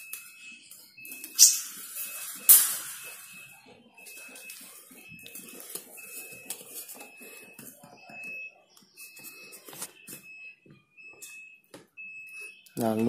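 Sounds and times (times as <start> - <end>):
thin high repeating tone: 1.0 - 7.4
wire birdcage clattering: 1.4 - 3.4.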